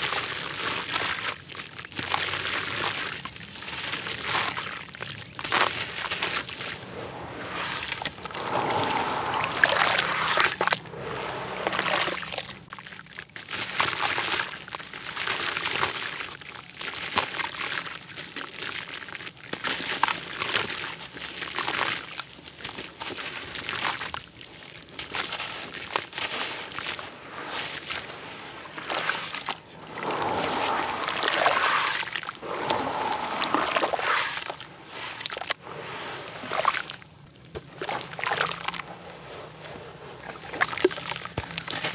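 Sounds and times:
grains trickling into water: 0:05.5 - 0:12.7, 0:26.2 - 0:41.7
water sloshing: 0:06.3 - 0:12.6, 0:26.8 - 0:41.2.

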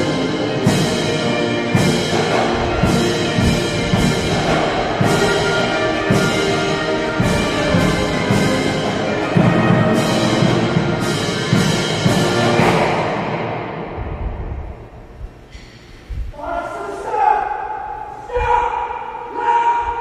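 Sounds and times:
military band playing a march: 0:00.0 - 0:14.0.

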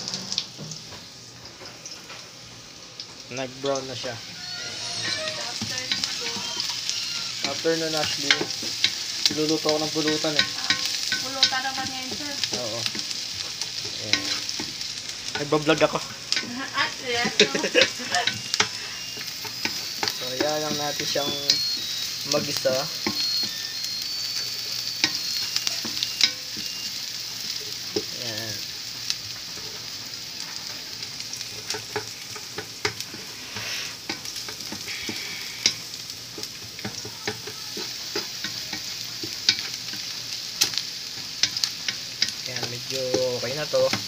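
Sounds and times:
vegetables sizzling in oil: 0:00.0 - 0:44.0
utensil clicking against pan: 0:04.7 - 0:16.6, 0:17.2 - 0:24.3, 0:31.4 - 0:33.2, 0:34.0 - 0:44.0.

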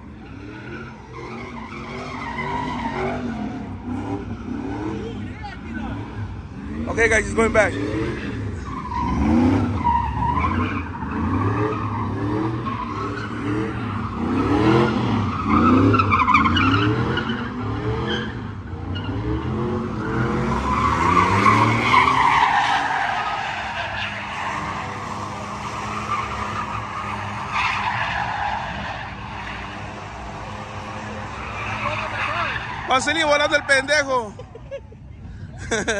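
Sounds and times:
truck engine revving: 0:06.6 - 0:18.2, 0:19.0 - 0:33.9
tyres squealing: 0:20.0 - 0:34.3.

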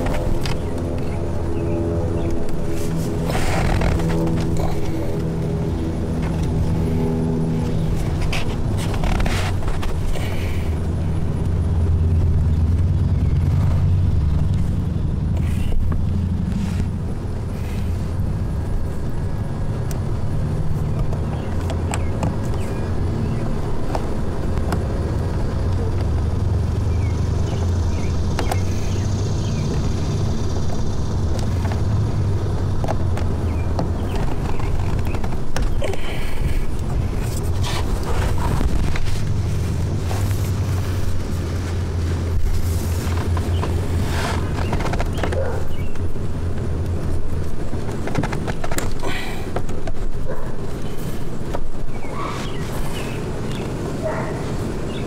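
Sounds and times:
vehicle engine rumble: 0:00.0 - 0:55.0.

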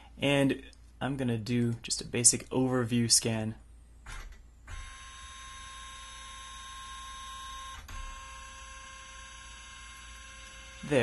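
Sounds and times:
scanner motor whine: 0:04.8 - 0:11.0.

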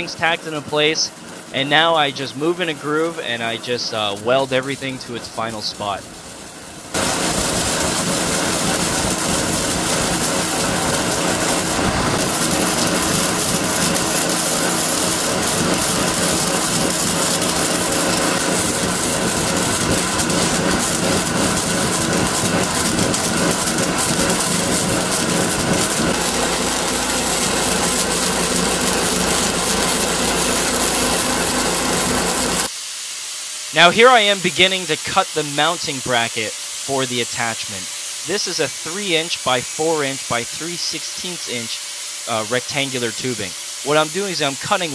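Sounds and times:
welding arc crackling and sizzling: 0:00.0 - 0:44.9.

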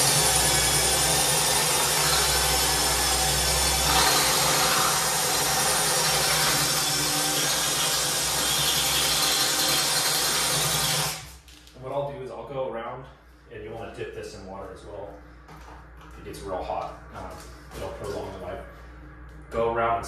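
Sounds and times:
drill grinding into tile: 0:00.0 - 0:11.3.

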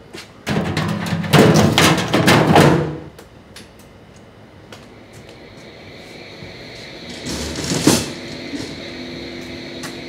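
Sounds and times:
sheet-metal duct clattering: 0:00.4 - 0:03.1.

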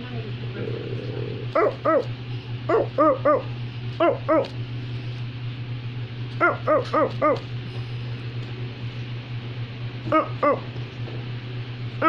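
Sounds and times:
steady low hum: 0:00.0 - 0:12.0
high yapping dog barks: 0:01.6 - 0:02.1, 0:02.7 - 0:04.6, 0:06.4 - 0:07.5.

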